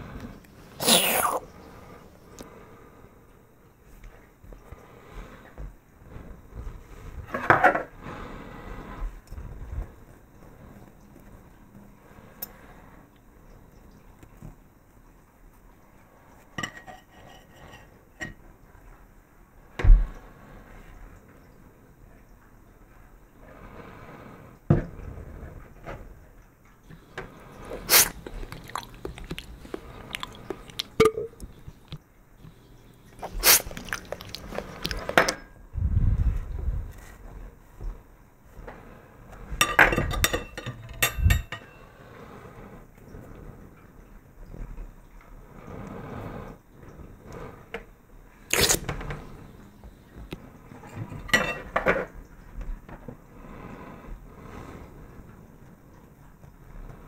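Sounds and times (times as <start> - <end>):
tableware clattering: 16.6 - 18.4, 39.6 - 41.8, 50.9 - 52.1.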